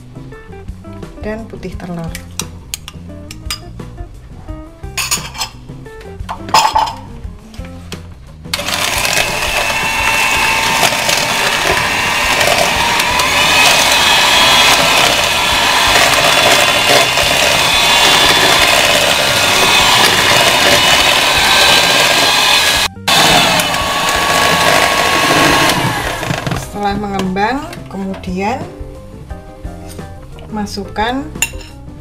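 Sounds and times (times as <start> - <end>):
electric hand mixer whisking: 8.6 - 26.9.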